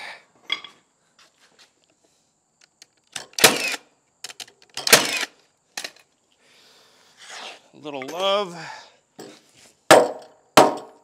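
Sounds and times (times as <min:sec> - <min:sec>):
nail gun firing: 0:03.2 - 0:03.8, 0:04.8 - 0:05.3, 0:09.9 - 0:10.9.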